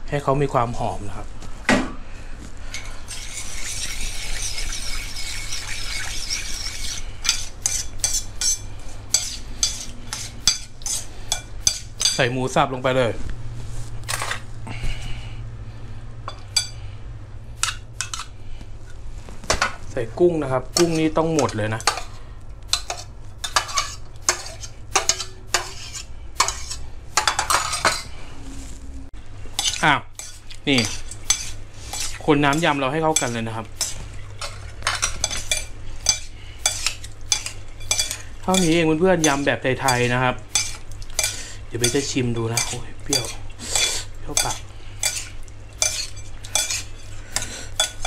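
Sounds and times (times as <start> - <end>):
spoon scraping in liquid: 2.7 - 12.2, 22.7 - 28.1, 29.6 - 48.0
spoon clinking against bowl: 32.5 - 46.8.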